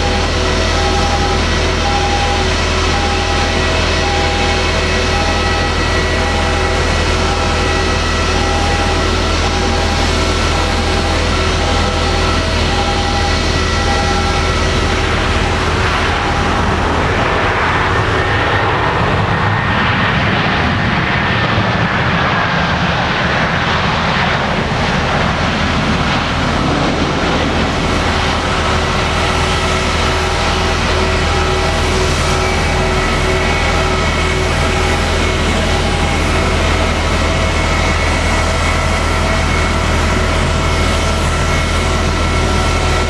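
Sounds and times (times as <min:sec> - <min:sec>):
steady jet engine whine: 0:00.0 - 0:43.0
taxiing jet engines rushing: 0:00.0 - 0:43.0.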